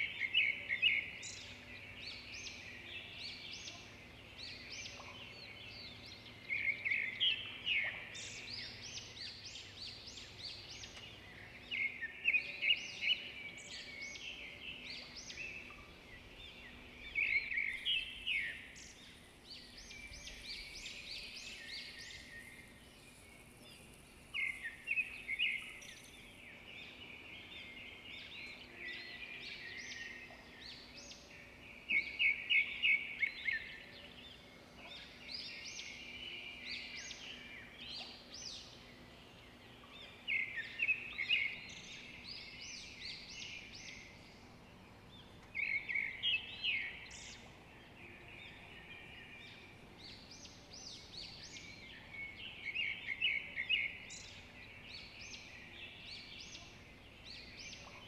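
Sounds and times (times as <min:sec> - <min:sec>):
quiet bird twittering: 0:00.0 - 0:58.0.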